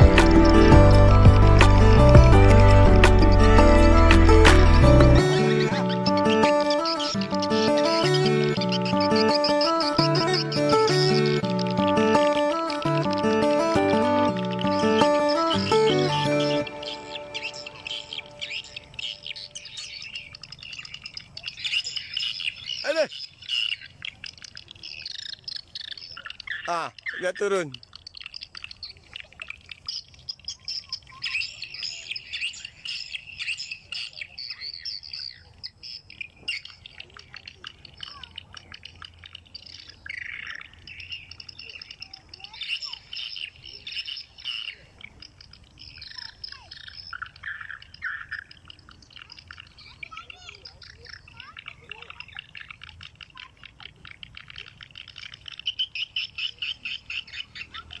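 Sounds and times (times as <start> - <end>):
swiftlets twittering: 5.2 - 58.0.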